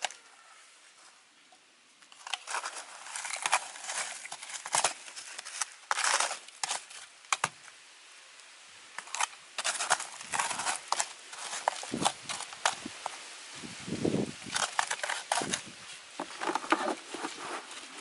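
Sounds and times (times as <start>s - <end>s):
gritty scraper scrapes: 2.2s - 7.5s, 9.0s - 12.8s, 14.4s - 18.0s.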